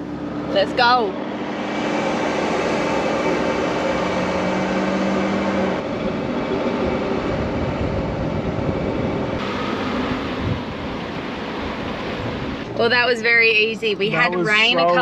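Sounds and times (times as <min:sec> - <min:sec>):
vehicle engine running under load: 0:00.0 - 0:15.0
wind noise: 0:05.8 - 0:12.8.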